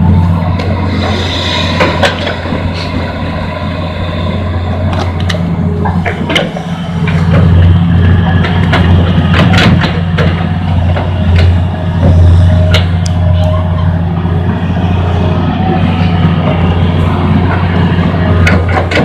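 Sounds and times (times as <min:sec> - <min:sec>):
excavator diesel engine running: 0:00.0 - 0:19.0
sharp clicks and knocks: 0:08.4 - 0:13.2.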